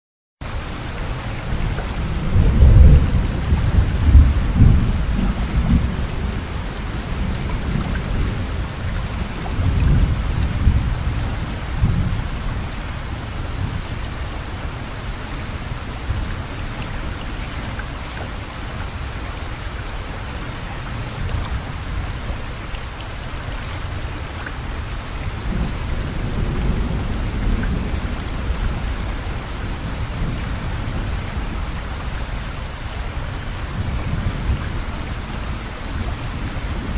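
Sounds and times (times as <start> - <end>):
steady rain falling: 0.4 - 36.9
rolling thunder rumbles: 1.4 - 14.0, 25.2 - 36.9.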